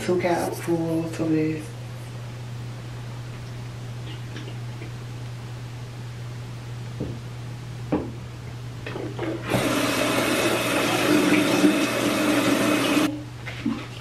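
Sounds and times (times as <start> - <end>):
sink tap running: 9.2 - 13.1.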